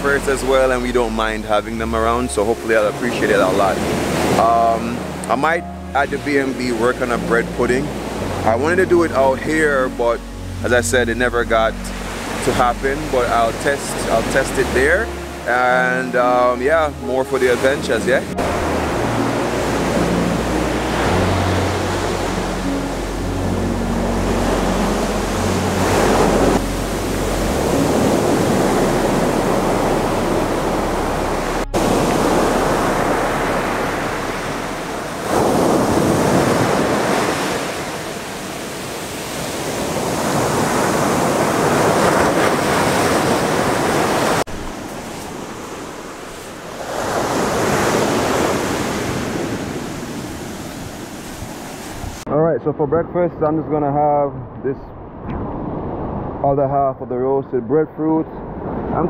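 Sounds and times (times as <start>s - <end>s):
sea surf breaking: 0.0s - 52.3s
wind buffeting microphone: 23.8s - 52.3s.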